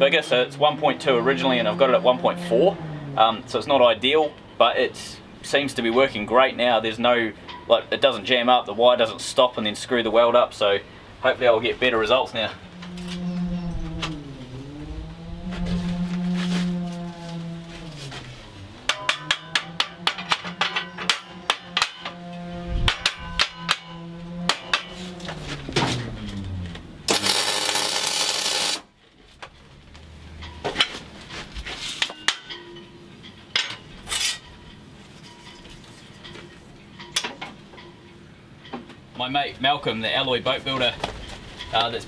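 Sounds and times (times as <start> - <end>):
welding arc crackling: 27.1 - 28.9.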